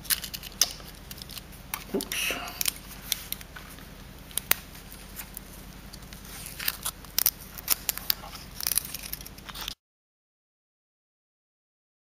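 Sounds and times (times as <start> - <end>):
scratchy clicks and crackles: 0.0 - 9.8.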